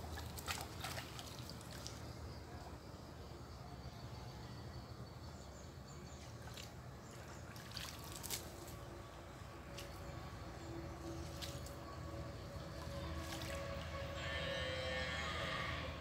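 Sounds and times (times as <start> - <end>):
short sharp splashes: 0.0 - 2.0, 6.4 - 8.8, 12.8 - 13.8
water trickling: 0.0 - 2.2, 6.1 - 14.2.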